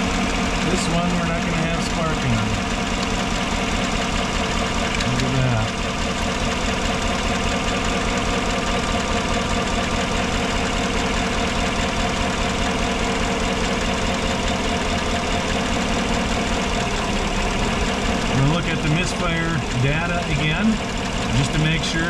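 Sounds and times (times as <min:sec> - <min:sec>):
truck engine idling with misfire: 0:00.0 - 0:22.0.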